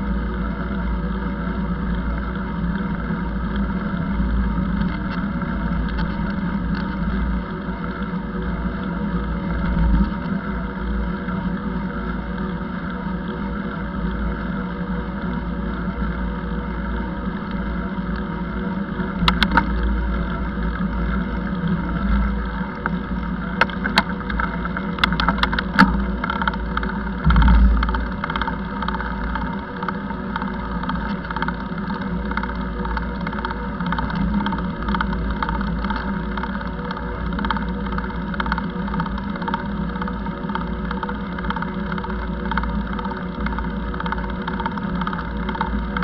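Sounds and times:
road and wind noise while cycling: 0.0 - 46.0
sharp clicks or rattles: 23.6 - 46.0
low thump: 27.2 - 28.1.

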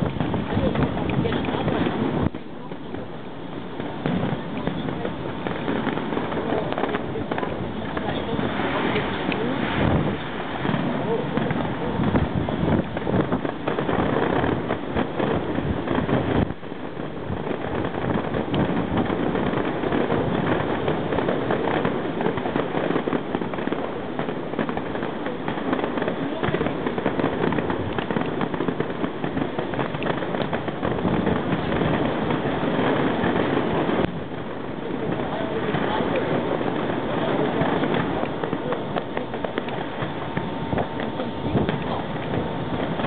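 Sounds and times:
dense background noise: 0.0 - 43.0
fireworks popping and crackling: 0.0 - 43.0.

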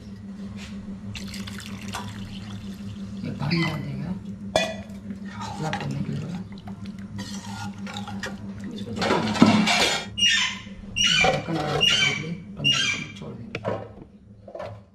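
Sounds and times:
steady low hum: 0.0 - 14.9
metal lid scraping and squeaking: 9.4 - 13.2.

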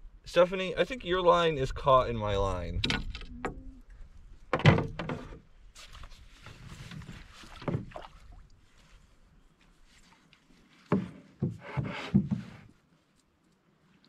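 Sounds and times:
knocks against a canoe: 4.5 - 5.4, 7.0 - 8.1, 10.9 - 12.7.

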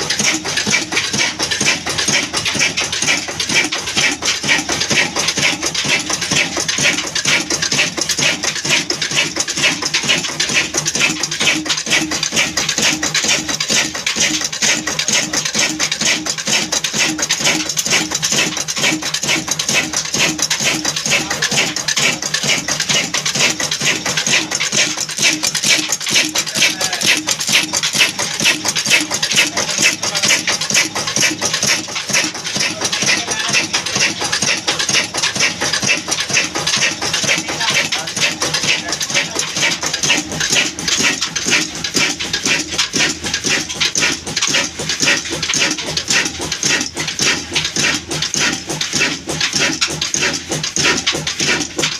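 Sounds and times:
fast metallic valve clatter: 0.0 - 51.9
stationary diesel engine running: 0.0 - 51.9.

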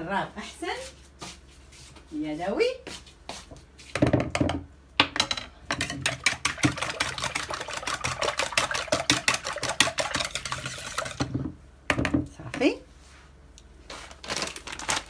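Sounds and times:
whisk beating eggs in bowl: 5.8 - 11.5.

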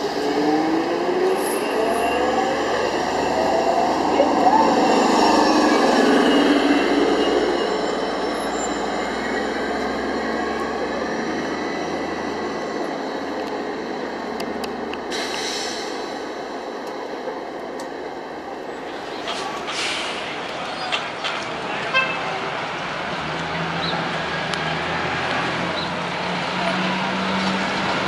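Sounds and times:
bus driving away whining: 0.0 - 28.0
short hiss: 15.1 - 16.0.

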